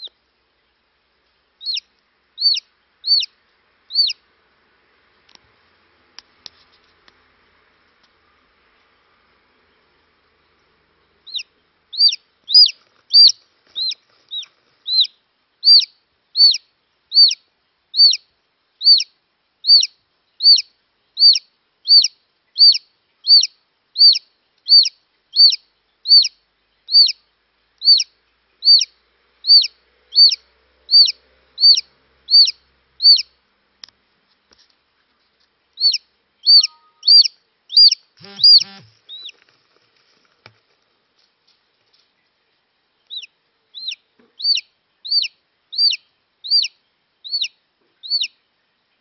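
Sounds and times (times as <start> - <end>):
chick peeping: 1.6 - 4.2, 9.8 - 33.4, 35.7 - 39.6, 43.0 - 48.4.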